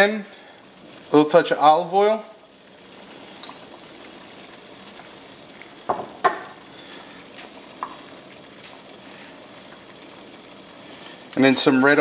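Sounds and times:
oil sizzling in a skillet: 0.0 - 12.0
pot of water boiling: 0.0 - 12.0
sharp clicks and pops: 3.4 - 4.2.

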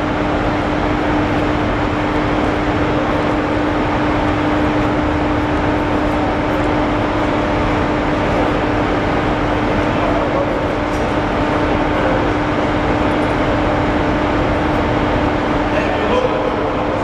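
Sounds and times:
machinery drone: 0.0 - 17.0.

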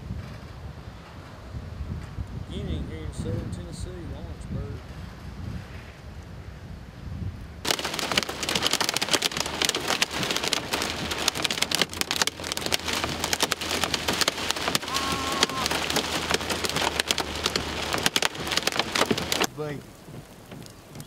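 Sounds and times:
vehicle low rumble: 0.0 - 21.0
heavy rain on vehicle roof: 7.6 - 21.0.

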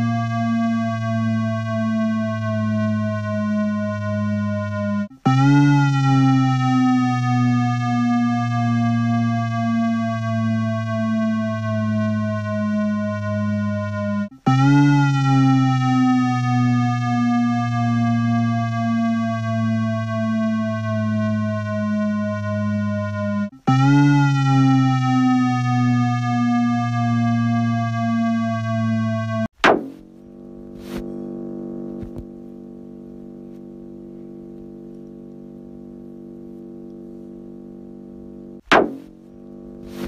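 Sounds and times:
distorted sliding electronic tones: 0.0 - 32.6, 38.3 - 40.0
low electronic drone: 0.0 - 40.0
sharp click: 29.6 - 30.1, 38.6 - 40.0.

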